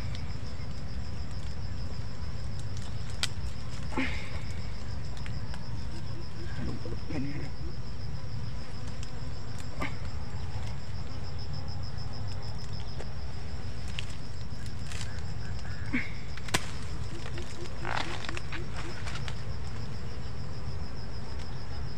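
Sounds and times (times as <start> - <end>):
pruning shears snipping: 16.4 - 18.2.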